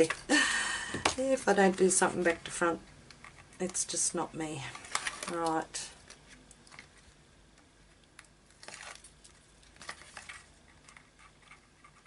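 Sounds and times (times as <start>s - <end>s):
paper rustling and crinkling: 4.7s - 7.2s, 8.5s - 12.0s.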